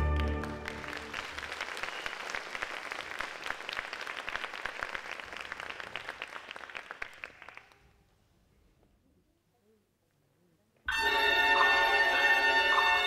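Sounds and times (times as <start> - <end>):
music: 0.0 - 1.2, 10.9 - 13.0
audience applauding: 0.0 - 7.9.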